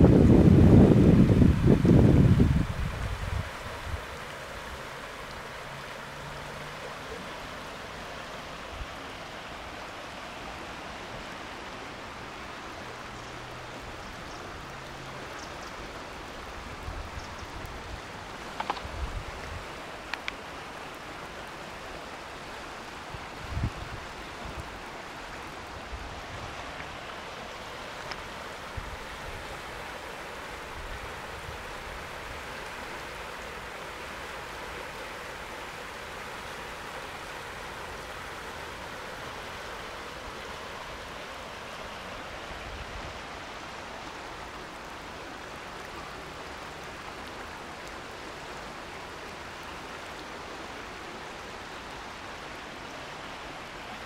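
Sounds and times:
river rushing: 0.0s - 54.0s.

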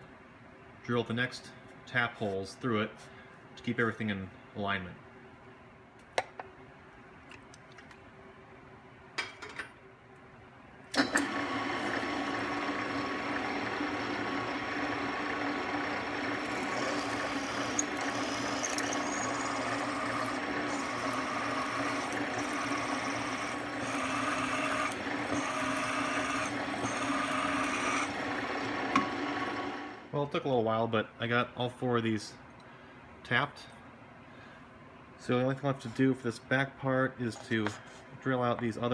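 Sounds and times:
drill bit whining in metal: 11.0s - 30.0s
drill press motor running: 11.0s - 30.1s.

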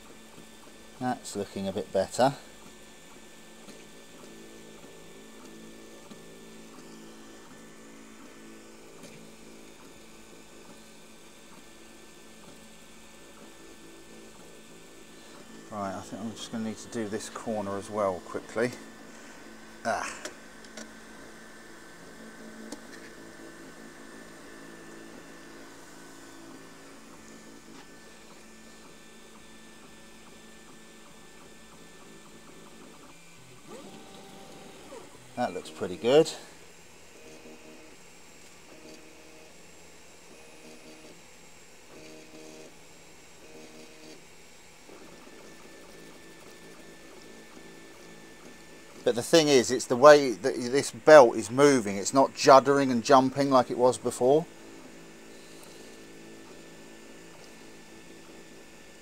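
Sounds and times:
cooling fans hissing: 0.2s - 40.0s, 44.2s - 59.0s
stepper motors humming: 15.1s - 36.8s.

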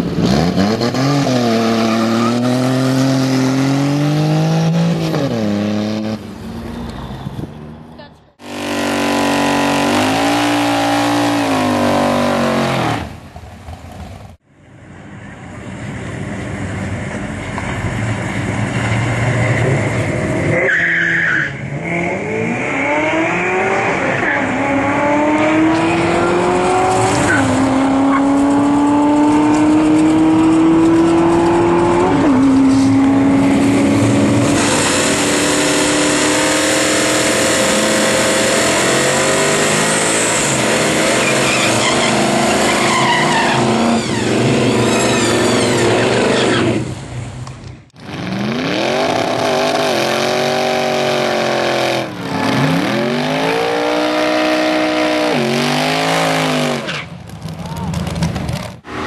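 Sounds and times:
truck engine revving high: 0.0s - 6.4s, 8.4s - 13.2s, 18.0s - 47.2s, 48.0s - 57.1s
car engine revving: 0.0s - 6.8s, 8.4s - 13.3s, 21.5s - 47.2s, 48.0s - 57.5s
car accelerating with upshifts: 21.6s - 44.7s.

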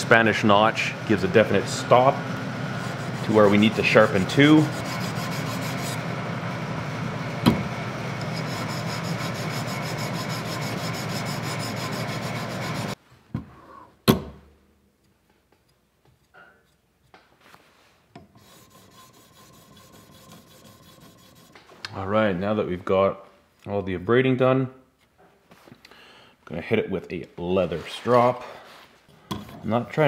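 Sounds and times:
sharpening stone scraping knife: 4.6s - 6.0s, 8.3s - 13.0s.

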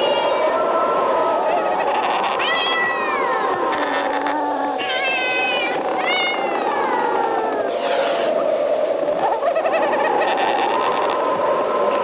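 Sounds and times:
cats yowling: 0.0s - 8.6s.

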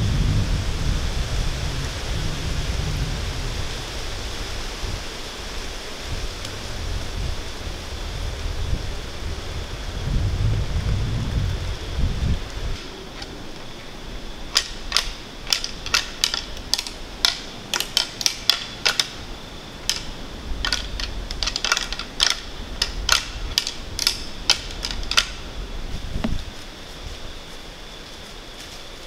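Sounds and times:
antlers clacking together: 14.5s - 25.5s.

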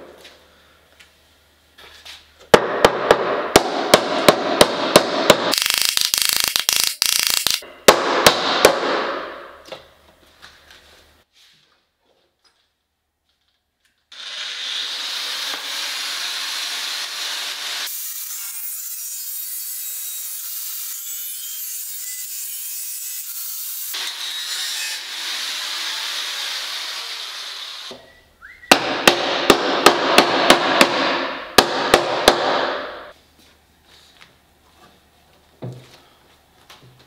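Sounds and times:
sharp loud clicks: 5.5s - 7.6s
angle grinder cutting steel: 14.1s - 27.9s.

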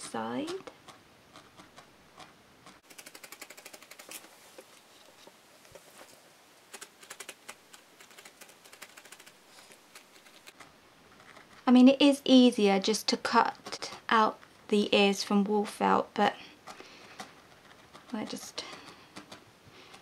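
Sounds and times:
felting needle ticking: 0.5s - 4.2s, 6.7s - 11.6s.

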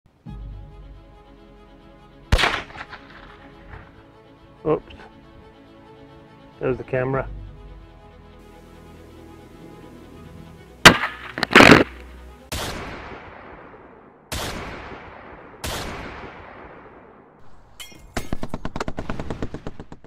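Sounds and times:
faint music: 0.2s - 12.5s
gunshots with echo: 2.3s - 3.6s, 10.9s - 17.4s.

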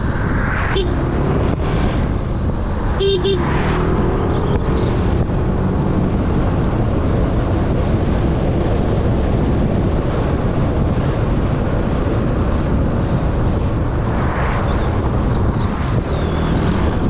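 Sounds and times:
vehicle road and engine noise: 0.0s - 17.0s
wind rumbling on microphone: 0.0s - 17.0s.

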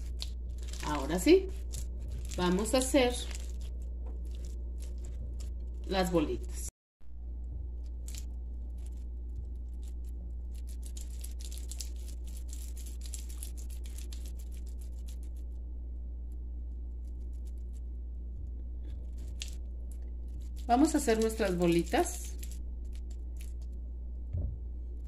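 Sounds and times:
sticky mixture clicks and crackles: 0.0s - 6.0s, 7.8s - 15.5s, 18.8s - 23.8s
steady low hum: 0.0s - 25.0s.

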